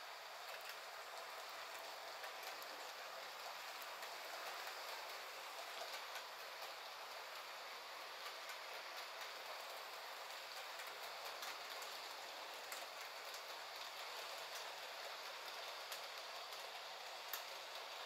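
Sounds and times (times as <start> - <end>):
model train wheels rolling on rails: 0.0 - 18.0
faint clicks: 15.5 - 17.8.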